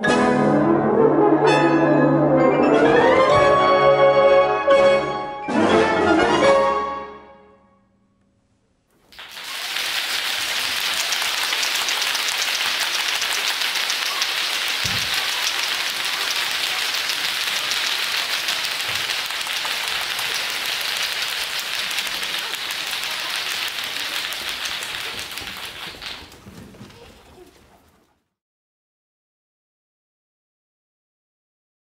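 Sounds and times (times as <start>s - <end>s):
brass band playing: 0.0s - 7.3s
audience applauding: 9.0s - 27.5s.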